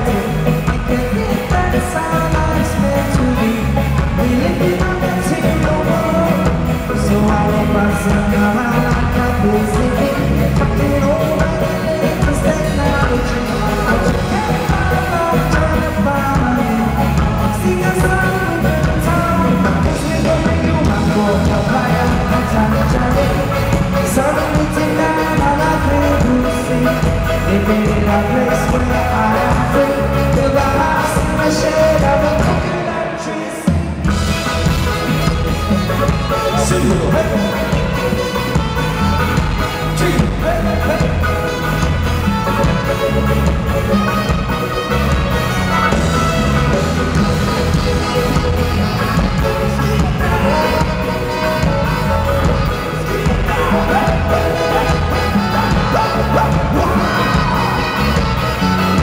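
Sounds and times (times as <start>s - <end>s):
live reggae band: 0.0s - 59.0s
person singing: 0.0s - 59.0s.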